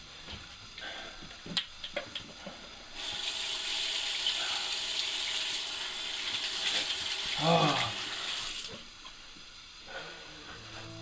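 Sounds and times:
tap water running over hands: 3.0s - 8.9s.

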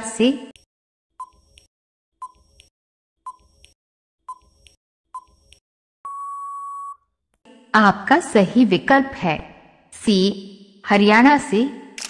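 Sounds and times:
long steady beep: 6.1s - 7.0s.

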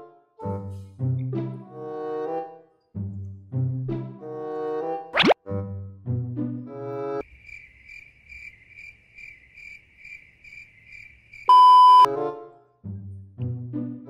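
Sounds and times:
cricket chirping trill: 7.2s - 12.1s
test pattern beep: 11.5s - 12.1s.

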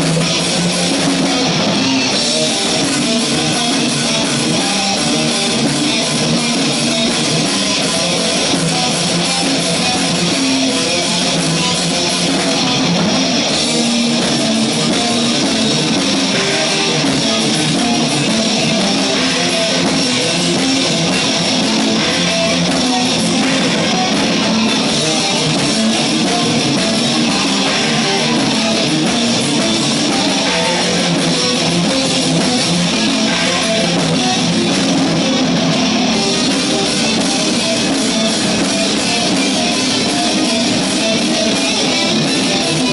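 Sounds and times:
drums: 0.0s - 42.9s
electric guitars: 0.0s - 42.9s.

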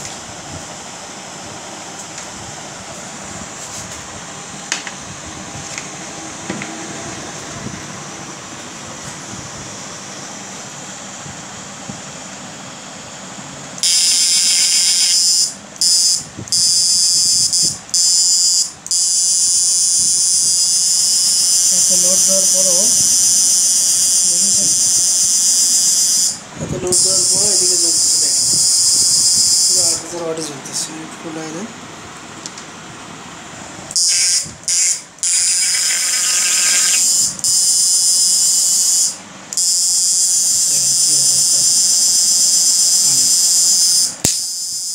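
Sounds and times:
high-pitched electrical buzz: 13.8s - 30.4s, 33.9s - 44.9s.

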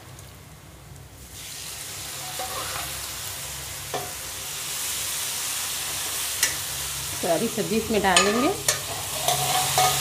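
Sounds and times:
vegetables sizzling in hot oil: 0.0s - 10.0s
metal ladle clinking on pan: 8.1s - 10.0s.

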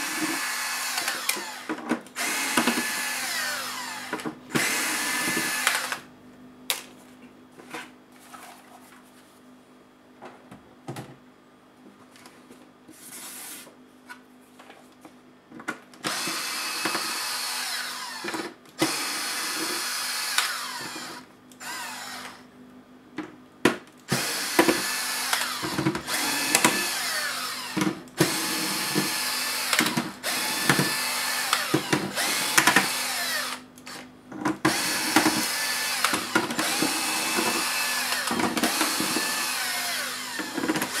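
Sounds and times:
electric screwdriver whirring: 0.0s - 6.0s, 16.0s - 22.4s, 24.1s - 34.1s, 34.7s - 41.0s.

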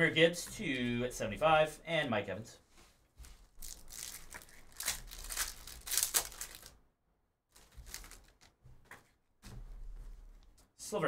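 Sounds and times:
foil wrapper crinkling: 3.4s - 6.8s, 7.5s - 8.5s.

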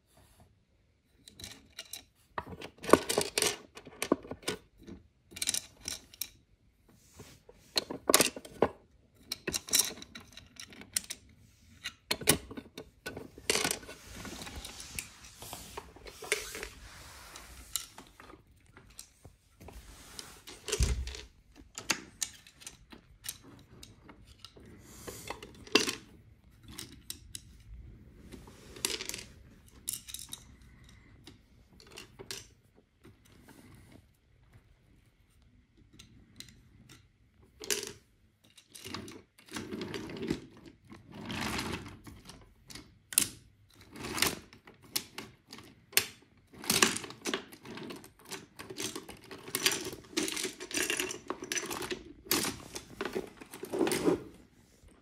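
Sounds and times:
toy pieces clicking and clattering: 1.3s - 6.4s, 7.7s - 15.4s, 20.5s - 27.8s, 28.5s - 32.5s, 36.0s - 54.2s
toy pieces rattling: 46.7s - 54.2s.

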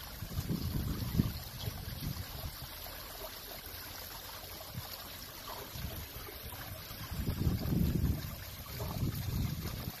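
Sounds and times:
water splashing into stone pool: 0.0s - 10.0s
wind buffeting microphone: 0.2s - 2.8s, 5.7s - 10.0s.

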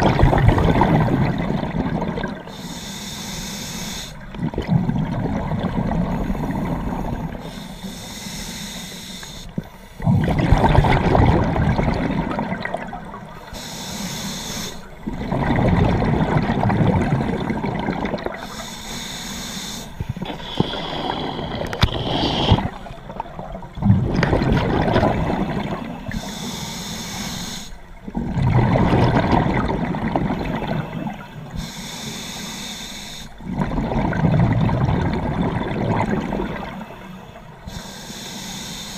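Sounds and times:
bubbling exhaled air: 0.0s - 2.7s, 4.0s - 8.1s, 9.4s - 26.6s, 28.0s - 31.7s, 33.4s - 36.8s
regulator hissing inhale: 2.4s - 4.3s, 6.1s - 10.1s, 13.3s - 15.0s, 18.4s - 22.8s, 26.1s - 27.9s, 31.3s - 33.4s, 36.8s - 38.9s.

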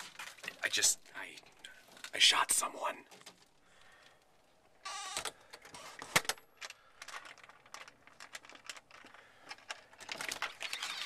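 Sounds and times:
small clicks and rattles: 5.2s - 11.0s.

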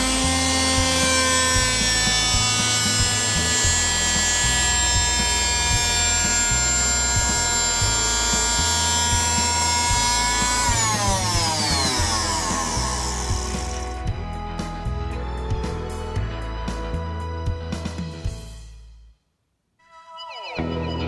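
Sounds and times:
electric router whining: 0.0s - 14.4s
background music with beat: 0.0s - 19.0s.

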